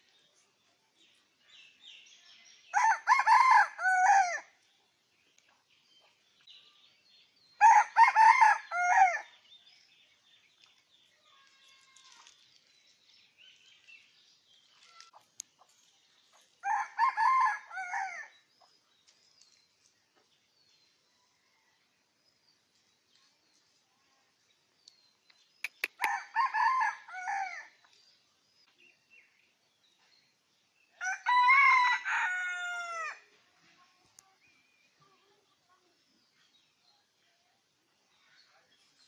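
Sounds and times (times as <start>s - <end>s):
rooster crowing: 2.8s - 4.4s, 7.6s - 9.2s, 26.0s - 27.7s, 31.0s - 33.2s.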